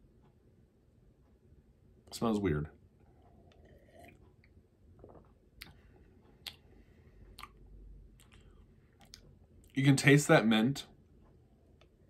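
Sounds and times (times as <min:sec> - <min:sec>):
sip from a mug: 0:03.5 - 0:04.3
lip and tongue clicks: 0:06.4 - 0:06.7, 0:07.3 - 0:09.3.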